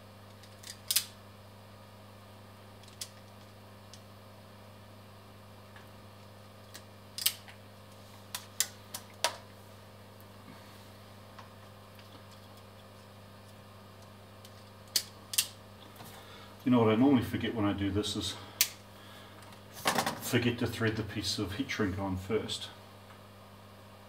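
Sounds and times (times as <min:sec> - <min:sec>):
steady low hum: 0:00.0 - 0:24.0
wire stripper and crimper clicks: 0:00.3 - 0:01.2, 0:06.7 - 0:07.6, 0:14.0 - 0:15.6.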